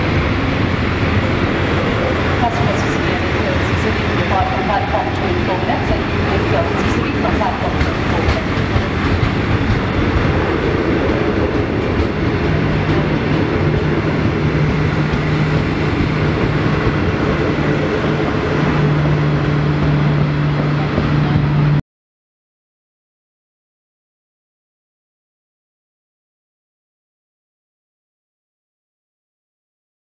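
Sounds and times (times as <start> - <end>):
train wheels rumbling on rail: 0.0 - 21.8.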